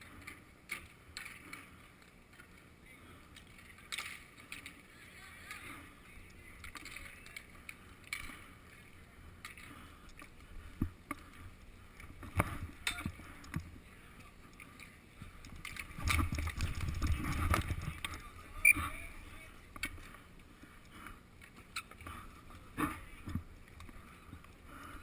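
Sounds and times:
skate wheels rolling on concrete: 0.0 - 25.0
rumble close to microphone: 15.2 - 18.1.

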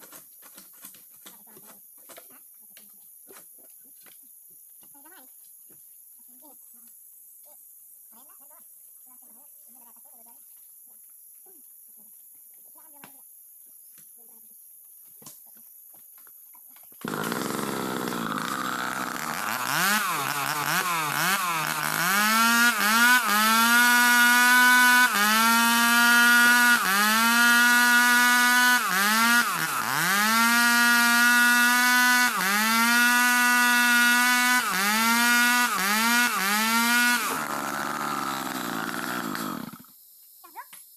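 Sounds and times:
two-stroke chainsaws cutting log: 17.0 - 39.9.

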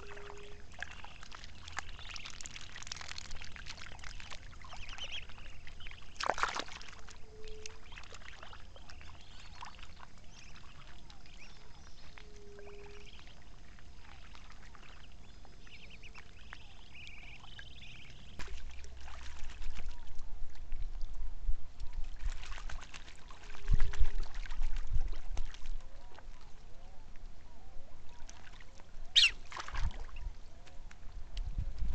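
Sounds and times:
low hoots: 0.0 - 0.7
lapping water: 0.0 - 21.2, 28.0 - 31.9
birds chirping: 4.1 - 6.3, 14.8 - 18.4, 29.1 - 29.4
water splash: 6.1 - 7.0, 29.2 - 30.2.

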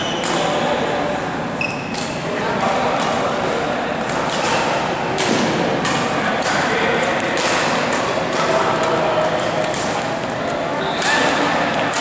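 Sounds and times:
rackets striking shuttlecock: 0.2 - 0.6, 4.0 - 10.4, 11.0 - 12.0.

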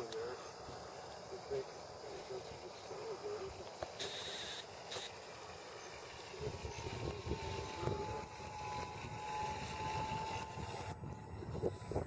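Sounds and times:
model airplane engine buzzing: 0.0 - 12.0
wind on microphone: 6.3 - 12.0.

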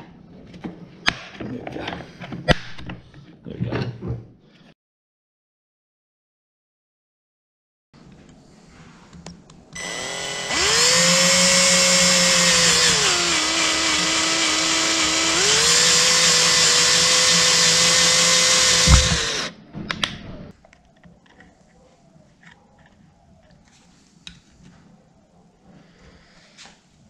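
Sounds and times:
power drill whining: 9.8 - 19.5.

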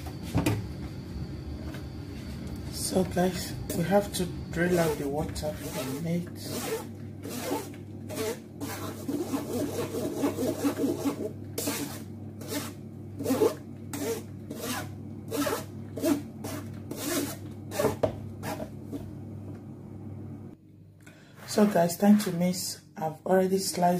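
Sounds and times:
metal spoon scraping wire strainer: 4.6 - 17.9.

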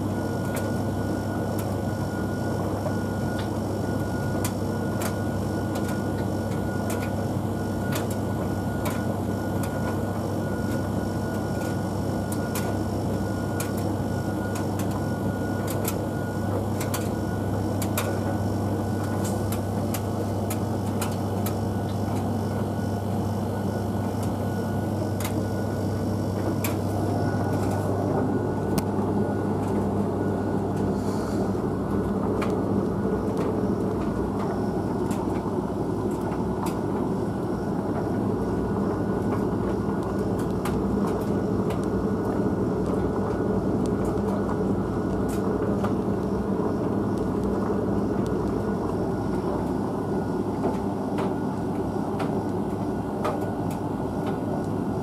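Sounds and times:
tumble dryer running: 0.0 - 55.0
light clicks in dryer drum: 1.5 - 1.9, 2.8 - 7.2, 7.8 - 12.8, 13.5 - 22.4, 24.0 - 24.5, 25.1 - 25.6, 26.3 - 27.9, 31.9 - 37.2, 39.2 - 54.9.

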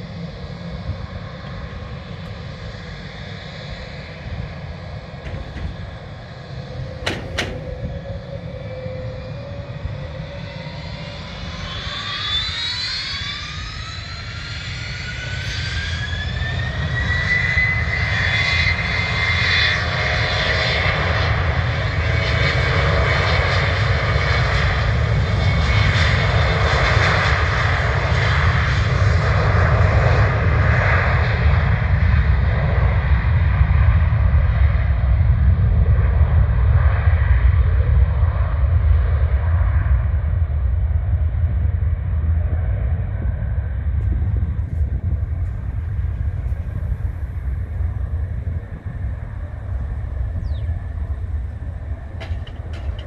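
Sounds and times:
jet engines spooling up: 0.0 - 29.9, 41.2 - 53.0
rising engine whine: 0.0 - 53.0.

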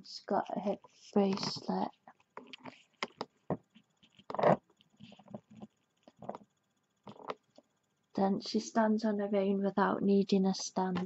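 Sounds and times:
plastic figure knocking and rustling: 1.2 - 6.5, 7.1 - 7.5.

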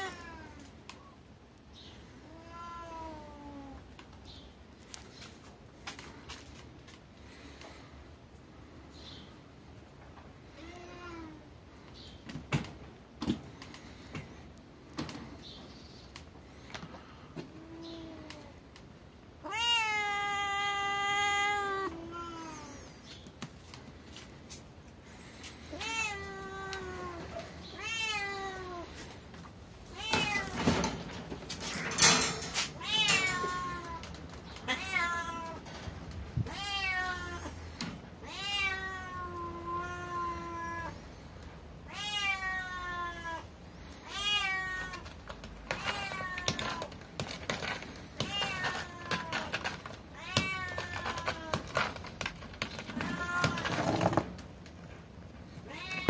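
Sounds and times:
cats meowing: 0.0 - 0.8, 2.2 - 3.9, 17.4 - 18.6, 19.4 - 23.0, 25.6 - 29.1, 29.9 - 31.0, 31.7 - 41.1, 41.9 - 47.0, 47.6 - 52.0, 52.6 - 54.2, 55.6 - 56.0.

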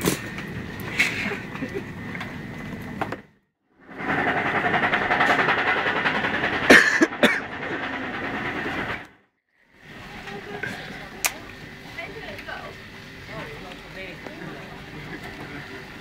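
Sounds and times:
loud rattling clatter: 3.8 - 9.3.

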